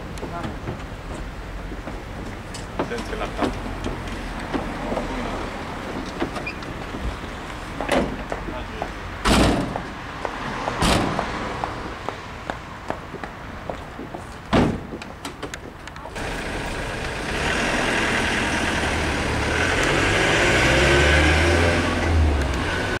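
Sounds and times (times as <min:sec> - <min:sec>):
van door slamming: 0:09.2 - 0:09.9, 0:10.8 - 0:11.2, 0:14.5 - 0:15.0
van engine pulling away: 0:16.2 - 0:23.0.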